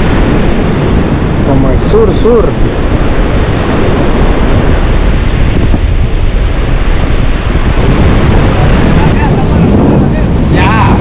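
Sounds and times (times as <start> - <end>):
strong wind on microphone: 0.0 - 11.0
surf on the beach: 0.0 - 11.0.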